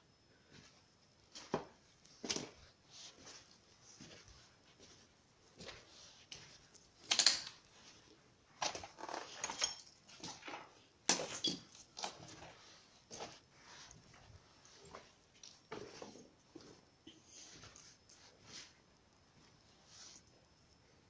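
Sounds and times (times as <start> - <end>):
footsteps crunching over rubble: 1.3 - 17.0
glass clinking underfoot: 8.6 - 12.4.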